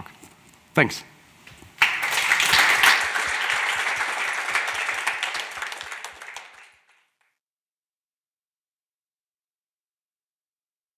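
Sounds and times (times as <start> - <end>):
audience applauding: 1.8 - 7.4.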